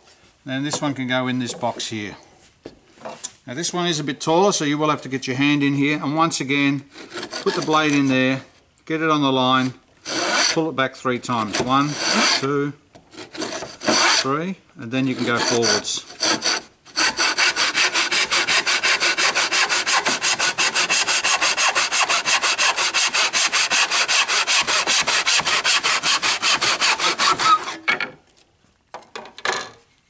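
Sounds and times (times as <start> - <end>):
saw cutting wood: 6.9 - 8.3, 10.0 - 10.7, 11.3 - 14.4, 15.0 - 27.9.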